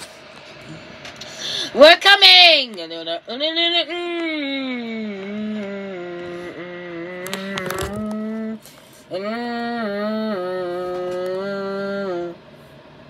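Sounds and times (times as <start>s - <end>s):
person humming engine drone: 2.8s - 12.7s.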